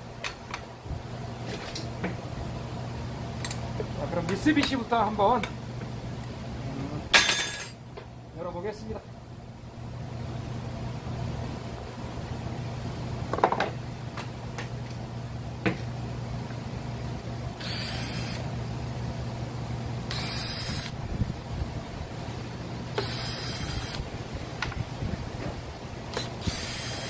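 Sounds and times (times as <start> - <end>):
steady low hum: 0.0 - 27.0
cordless drill whirring: 17.6 - 18.4, 20.1 - 21.0, 23.0 - 24.0, 26.1 - 27.0.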